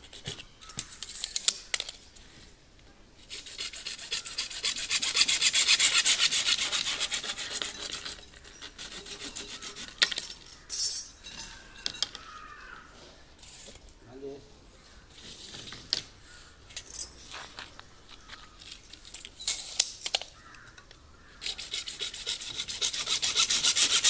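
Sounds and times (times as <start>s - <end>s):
hacksaw cutting plastic pipe: 21.4s - 24.0s.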